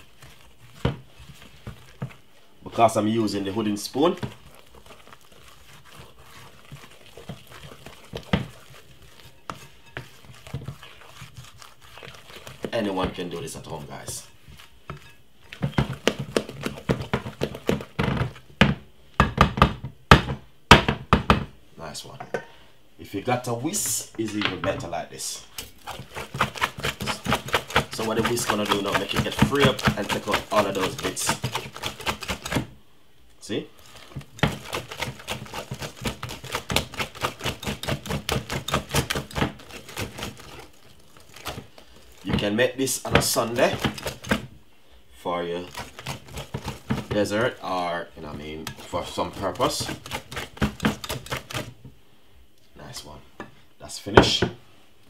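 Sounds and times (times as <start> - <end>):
whisk clicking against bowl: 2.8 - 18.3, 25.6 - 32.7, 33.8 - 44.4, 45.6 - 47.7, 48.3 - 51.8.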